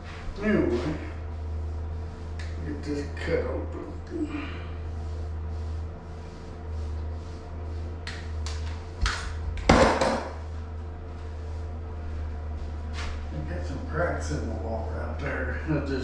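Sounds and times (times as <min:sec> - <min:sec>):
steady low hum: 0:00.0 - 0:16.0
loud knock: 0:09.6 - 0:10.4.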